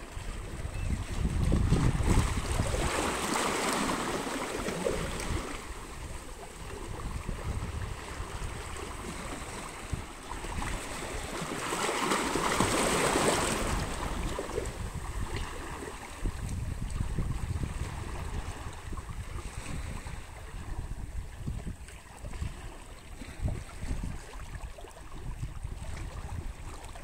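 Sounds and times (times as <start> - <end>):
waves splashing over rocks: 1.2 - 16.6.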